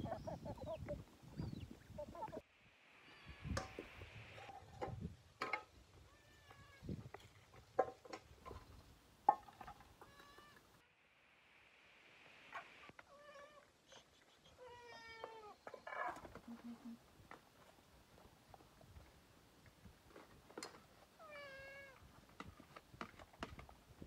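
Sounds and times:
small animal calling: 0:12.5 - 0:17.0.

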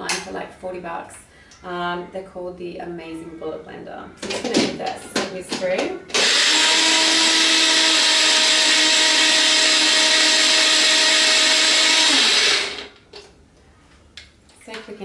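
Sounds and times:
personal blender running: 0:06.1 - 0:13.0.

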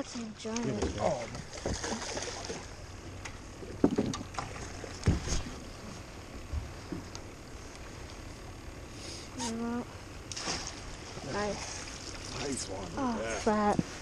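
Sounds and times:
fish splashing in water: 0:00.0 - 0:02.8, 0:10.3 - 0:12.9
wind and water noise: 0:00.0 - 0:14.0.

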